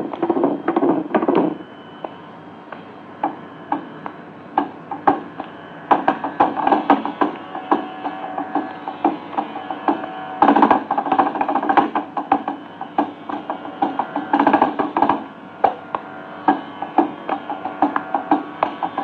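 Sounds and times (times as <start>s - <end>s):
steady drone: 0.0s - 19.0s
mridangam drum strokes: 5.1s - 19.0s.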